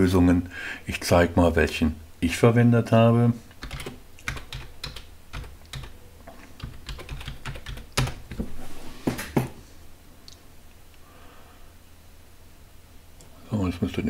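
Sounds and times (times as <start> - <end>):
typing on computer keyboard: 3.6 - 6.0, 6.6 - 8.4.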